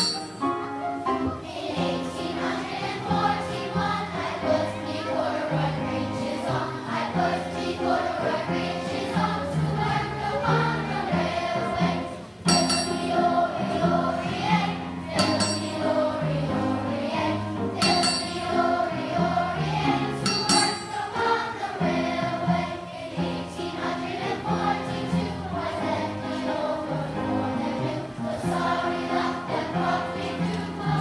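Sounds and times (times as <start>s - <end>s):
railroad track struck metallic clang: 0.0s - 0.5s, 12.5s - 13.1s, 15.2s - 15.8s, 17.8s - 18.5s, 20.2s - 21.0s
children's choir singing: 0.0s - 31.0s.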